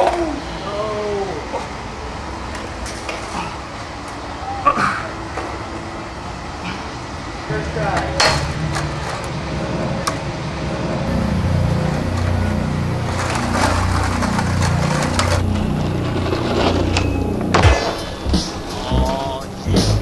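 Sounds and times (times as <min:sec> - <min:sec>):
skateboard grinding metal handrail: 0:07.5 - 0:20.0.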